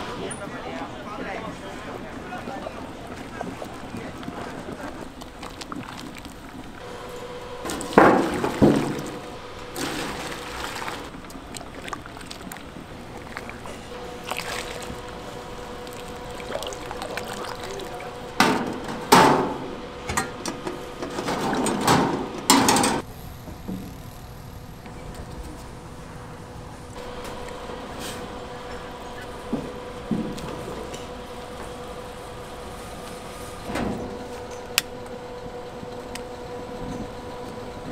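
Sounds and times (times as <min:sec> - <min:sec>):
steady background hum: 0:00.0 - 0:37.9
liquid splashing: 0:03.2 - 0:06.8, 0:07.8 - 0:18.4.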